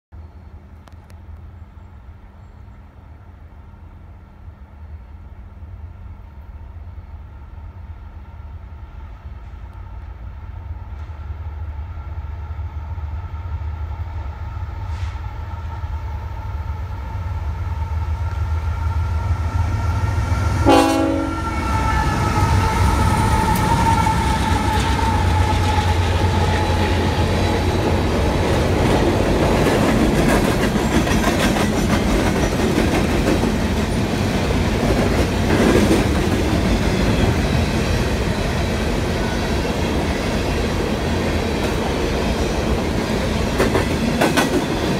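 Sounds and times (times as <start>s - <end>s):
diesel locomotive rumble: 4.9s - 44.9s
train horn: 17.8s - 27.8s
train wheels clattering: 21.8s - 44.9s.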